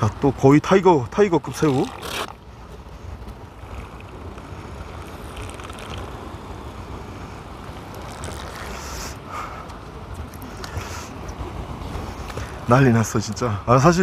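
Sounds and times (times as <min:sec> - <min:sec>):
faint rustles of hands: 0:07.9 - 0:11.2.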